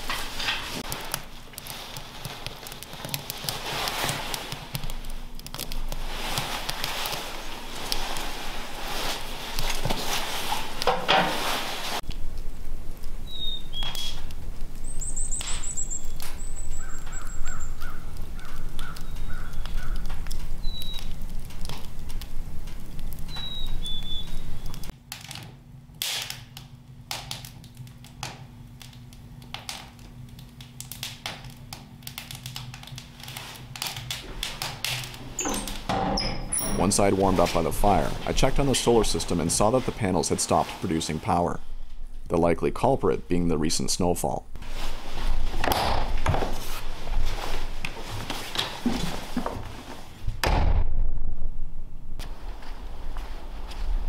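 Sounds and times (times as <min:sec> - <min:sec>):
fire crackling and popping: 0:00.0 - 0:54.0
low steady hum: 0:00.0 - 0:54.0
birds chirping: 0:13.2 - 0:21.2, 0:23.3 - 0:24.9.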